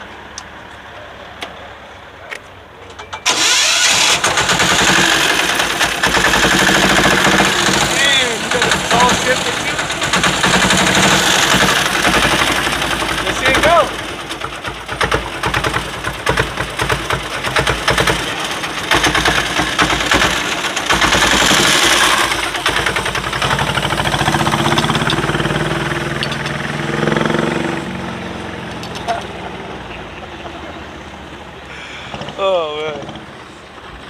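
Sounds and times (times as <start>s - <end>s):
small engine popping: 3.3s - 26.6s.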